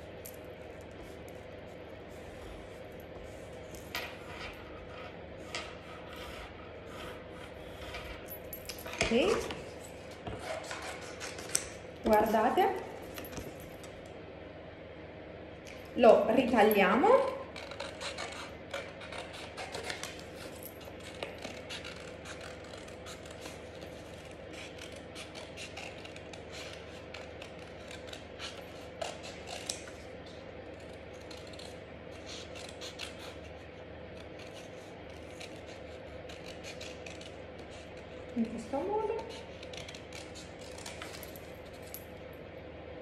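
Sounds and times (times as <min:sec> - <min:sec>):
scissors snipping cardstock: 0:17.2 - 0:30.0, 0:34.1 - 0:41.2.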